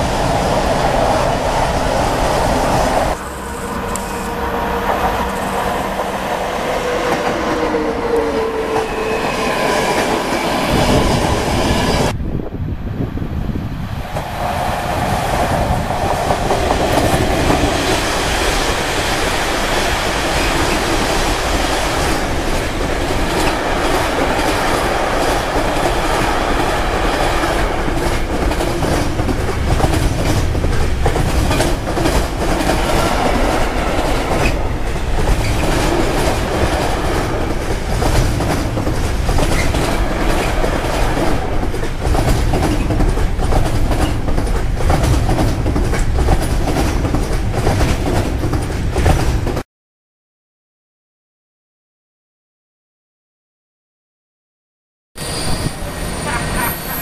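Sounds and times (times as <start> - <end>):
freight train rumbling past: 0.0 - 49.6, 55.2 - 57.0
wheels clicking over rail joints: 22.0 - 49.6.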